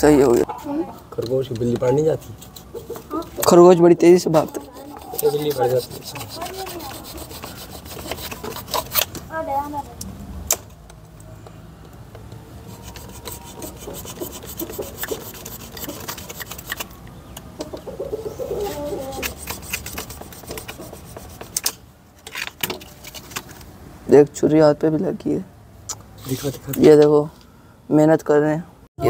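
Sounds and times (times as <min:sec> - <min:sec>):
knife sawing plastic crate: 0:04.4 - 0:09.0, 0:12.8 - 0:16.9, 0:18.6 - 0:21.6.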